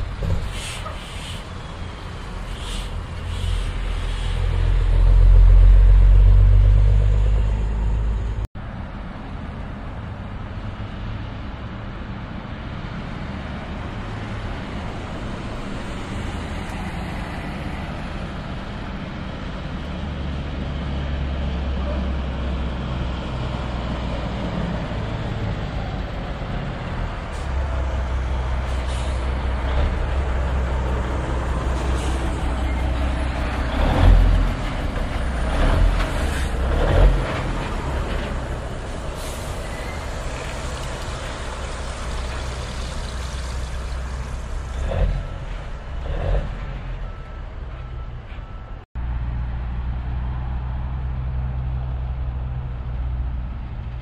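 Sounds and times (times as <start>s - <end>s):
trucks rumbling past: 0.0s - 54.0s
brief hisses: 0.4s - 1.5s, 2.5s - 4.4s.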